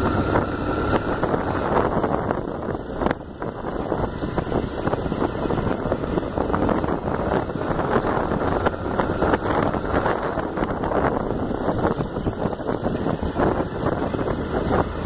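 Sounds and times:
motorcycle engine running: 0.0 - 15.0
wind buffeting microphone: 0.0 - 15.0.

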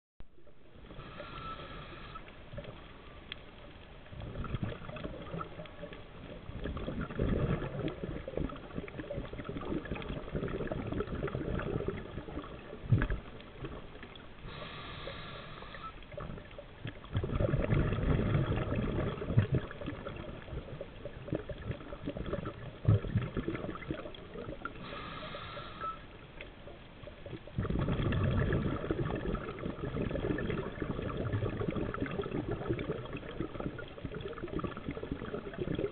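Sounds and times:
exhaled bubbles rumbling underwater: 0.3 - 35.9
regulator inhalation hiss: 0.9 - 2.3, 14.4 - 16.0, 24.8 - 26.1.

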